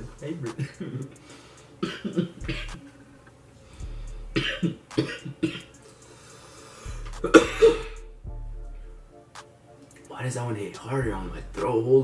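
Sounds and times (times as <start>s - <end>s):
man coughing: 0.6s - 1.1s, 1.8s - 2.8s, 4.4s - 5.7s, 7.2s - 8.0s.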